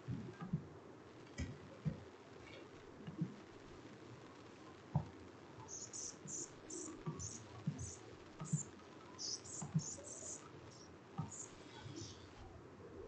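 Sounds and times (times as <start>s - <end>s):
high-pitched chirps: 5.7s - 12.2s.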